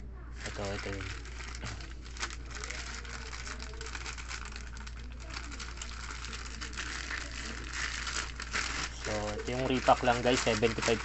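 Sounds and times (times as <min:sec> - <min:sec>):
steady low hum: 0:00.0 - 0:11.0
plastic mailer rustling: 0:00.4 - 0:11.0.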